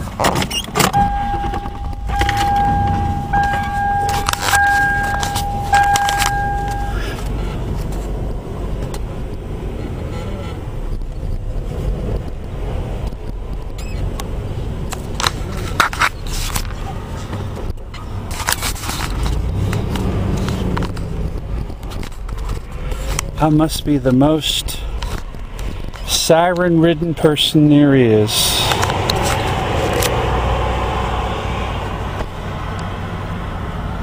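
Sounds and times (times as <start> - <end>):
handling clicks and rattles: 0.0 - 8.1
car engine and road rumble: 0.0 - 34.0
electronic warning tone: 0.9 - 7.2.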